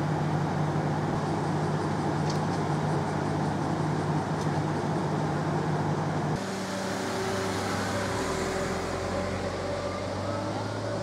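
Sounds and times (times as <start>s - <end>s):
diesel railcar idling: 0.0s - 11.0s
car driving past: 6.4s - 11.0s.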